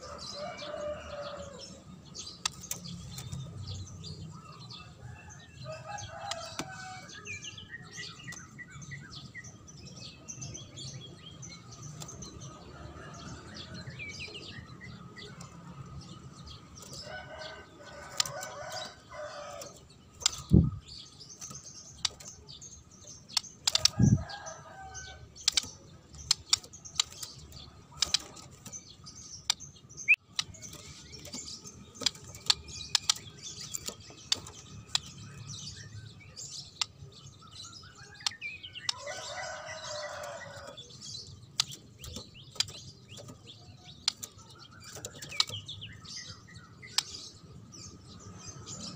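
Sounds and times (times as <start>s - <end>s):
bird chirps and calls: 0.0s - 48.9s.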